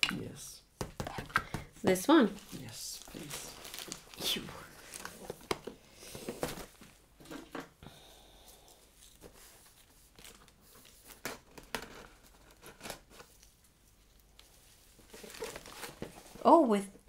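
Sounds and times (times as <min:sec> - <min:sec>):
packaging crinkling and tearing: 0:02.2 - 0:05.8, 0:09.1 - 0:16.4.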